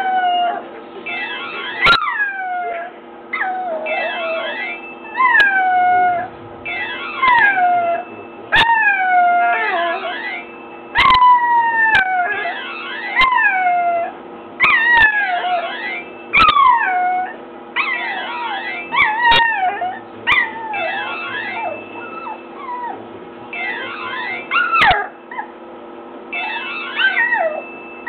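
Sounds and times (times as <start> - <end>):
puppy howling and yipping: 0.0 - 23.0, 23.6 - 25.6, 26.3 - 27.8
phone ringtone melody: 6.7 - 8.3.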